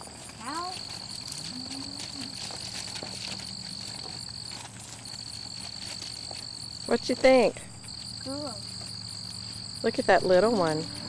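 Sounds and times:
insects trilling: 0.0 - 11.0.

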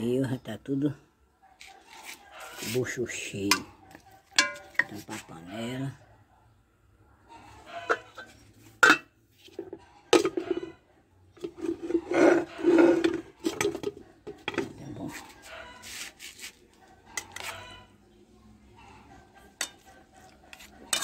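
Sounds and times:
pots knocking and clinking: 4.4 - 5.0, 7.9 - 10.7, 11.4 - 15.0, 19.5 - 21.0
pots scraping on stove: 7.6 - 10.8, 11.4 - 16.5, 19.2 - 21.0.

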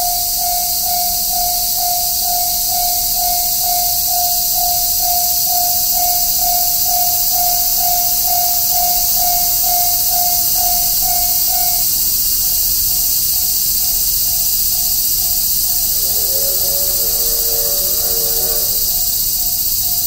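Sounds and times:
level-crossing electronic bell: 0.0 - 11.9
cicadas chorus: 0.0 - 20.0.

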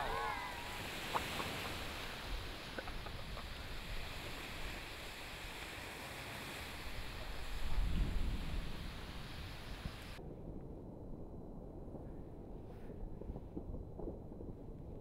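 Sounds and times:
volcano rushing and rumbling: 0.0 - 15.0
wind on microphone: 0.0 - 15.0
faint clicks: 2.6 - 3.6.

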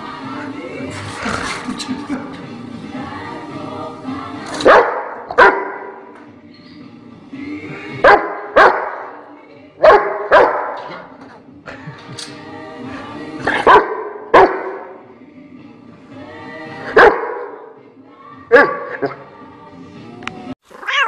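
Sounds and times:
dog barking loudly: 4.6 - 5.8, 8.0 - 9.1, 9.8 - 10.9, 13.6 - 14.7.

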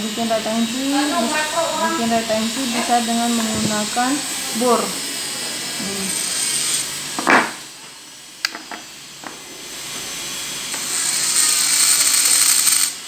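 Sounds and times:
dental handpiece grinding stone: 0.2 - 7.6, 10.7 - 13.0.

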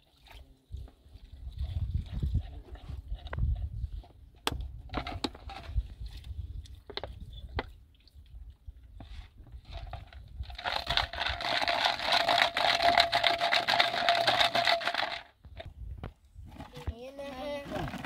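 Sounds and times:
water pouring into plastic jug: 9.7 - 15.3
plastic bottles clicking: 10.5 - 15.3.

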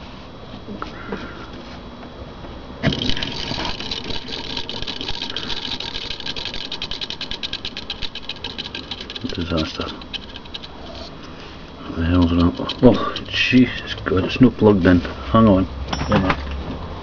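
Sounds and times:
rotor ticking while spinning: 2.8 - 14.6.

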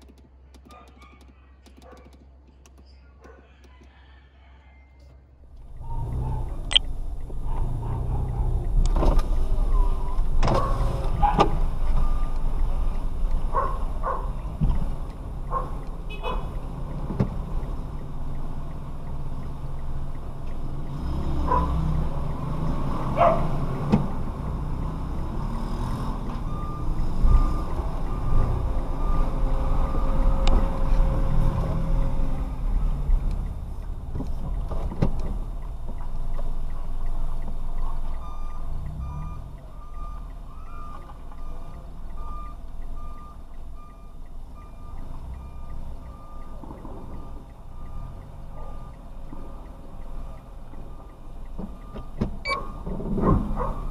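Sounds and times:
road and engine rumble: 0.0 - 53.9
short evenly spaced beeps: 24.7 - 30.4, 35.6 - 52.9.

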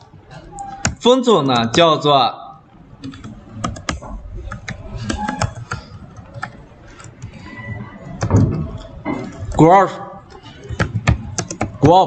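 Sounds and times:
keyboard typing clicks: 3.0 - 7.5, 10.3 - 11.8.

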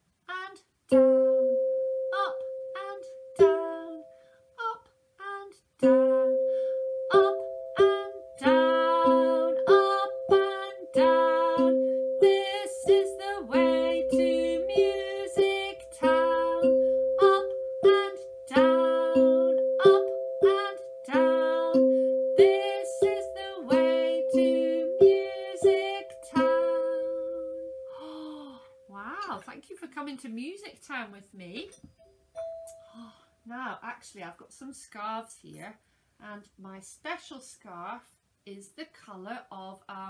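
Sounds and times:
tuned percussion tune: 5.8 - 29.5, 31.6 - 33.2.

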